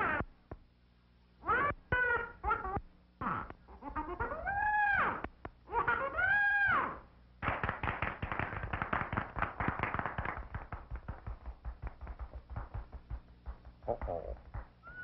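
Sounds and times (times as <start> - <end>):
rapid tapping and clattering: 7.4 - 14.8.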